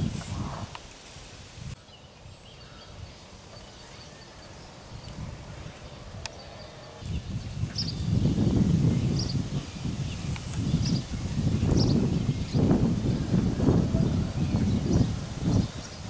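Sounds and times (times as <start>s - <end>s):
low rumbling noise: 3.9s - 16.0s.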